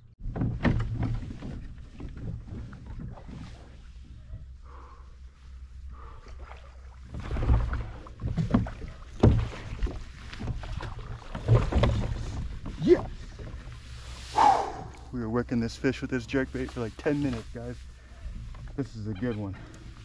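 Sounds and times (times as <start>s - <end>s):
knocks against a kayak: 0.2s - 3.2s, 7.2s - 12.7s.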